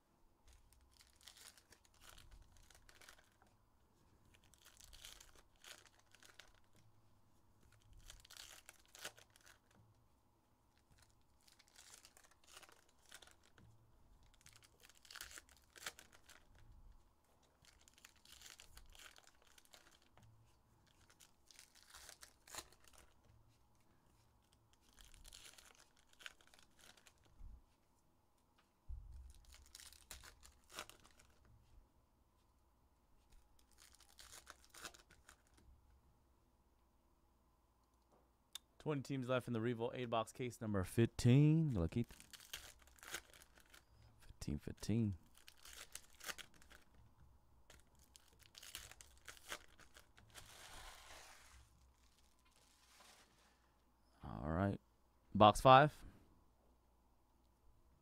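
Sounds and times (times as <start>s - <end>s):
foil wrappers tearing and crinkling: 0.6s - 3.4s, 4.3s - 6.7s, 7.7s - 9.8s, 11.0s - 13.6s, 14.2s - 16.6s, 17.6s - 20.2s, 20.8s - 23.2s, 24.7s - 27.3s, 29.3s - 31.4s, 33.6s - 35.6s, 42.1s - 43.9s, 45.2s - 46.9s, 47.7s - 53.5s.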